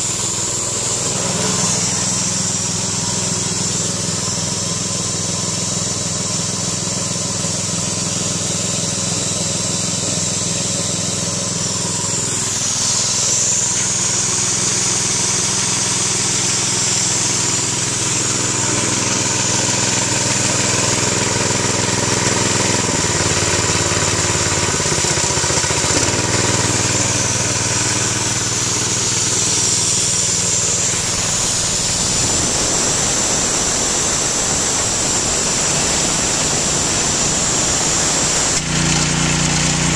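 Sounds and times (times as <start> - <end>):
engine running: 0.0 - 39.9
steady high hiss: 7.6 - 20.4, 27.0 - 38.7.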